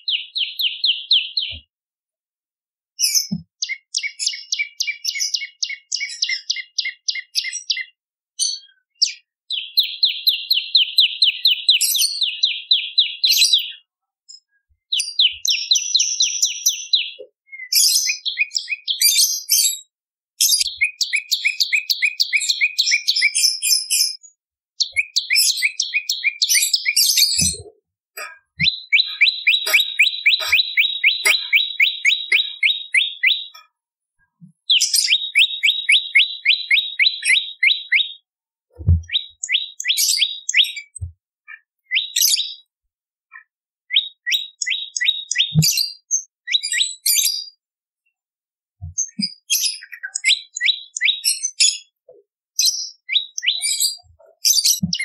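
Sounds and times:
bird singing rapid trills: 20.5s - 23.5s, 24.8s - 33.6s, 34.7s - 38.2s.

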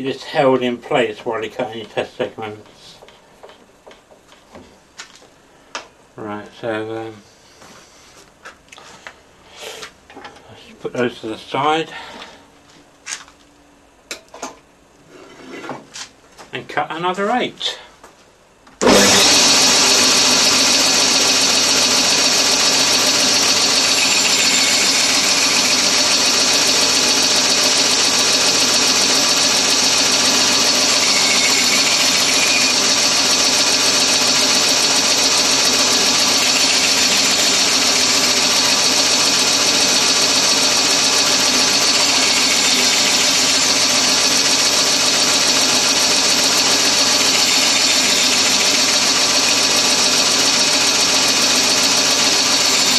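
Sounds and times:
bandsaw cutting wood: 18.8s - 52.9s.

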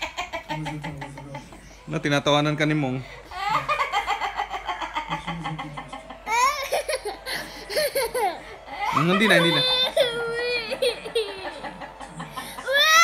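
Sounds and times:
toddler crying: 6.3s - 7.3s, 8.0s - 11.2s, 12.7s - 13.0s.

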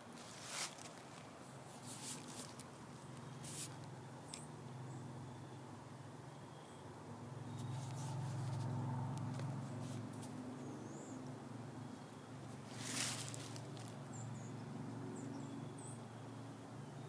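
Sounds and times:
rustling swish: 0.2s - 1.1s, 1.7s - 2.6s, 12.7s - 13.9s.

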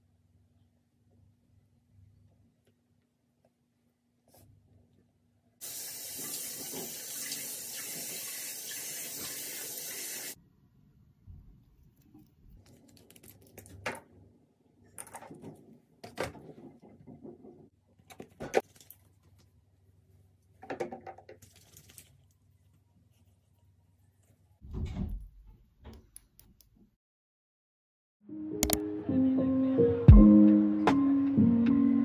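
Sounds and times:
sink tap running: 5.6s - 10.4s.

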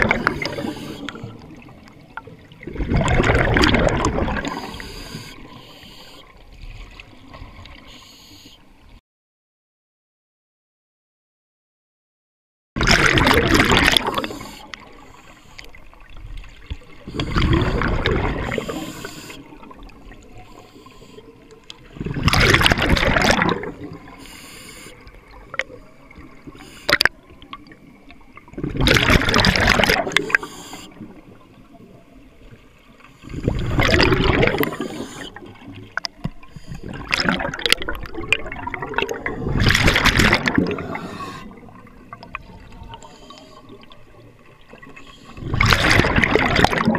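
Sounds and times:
bubbles gushing underwater: 0.0s - 5.0s, 12.8s - 15.0s, 16.0s - 20.3s, 21.8s - 24.2s, 25.0s - 32.0s, 33.2s - 46.9s
regulator breathing noise: 0.4s - 1.4s, 4.5s - 6.4s, 7.8s - 8.7s, 14.2s - 15.8s, 18.5s - 21.5s, 24.1s - 25.2s, 25.8s - 26.9s, 30.2s - 31.0s, 34.6s - 35.5s, 40.8s - 41.7s, 42.9s - 44.0s.

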